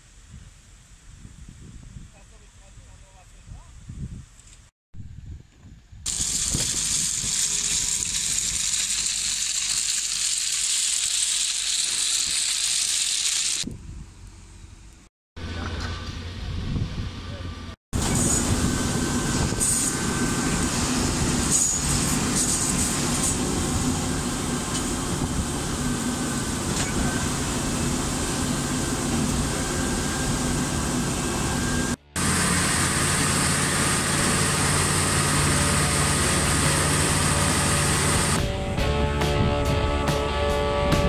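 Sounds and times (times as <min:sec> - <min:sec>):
diesel engine running: 0:13.4 - 0:39.2.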